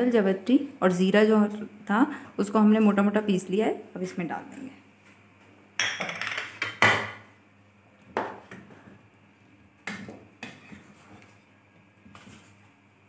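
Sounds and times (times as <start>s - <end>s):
wooden spoon stirring in pot: 7.9s - 13.0s.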